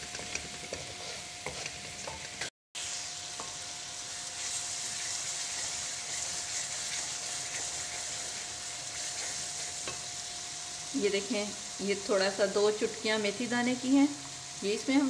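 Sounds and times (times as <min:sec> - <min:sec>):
food sizzling in hot oil: 0:00.0 - 0:15.0
wooden spoon scraping pan: 0:00.1 - 0:02.5.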